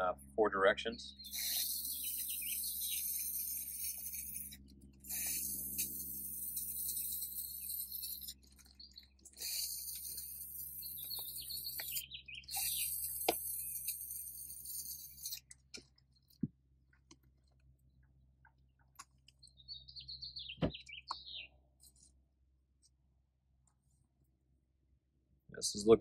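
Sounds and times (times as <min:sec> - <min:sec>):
high chirps: 0:01.0 - 0:15.5, 0:19.3 - 0:21.5
spray paint hissing: 0:01.2 - 0:15.5.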